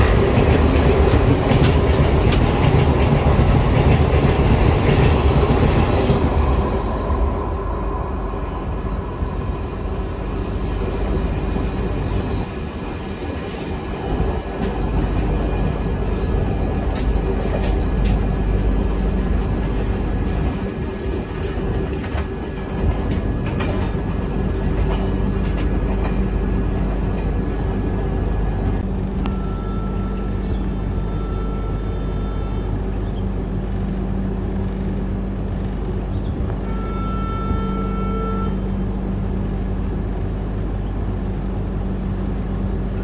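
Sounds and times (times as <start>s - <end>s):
train rumbling on rails: 0.0s - 43.0s
wheels clicking and knocking: 0.6s - 5.0s.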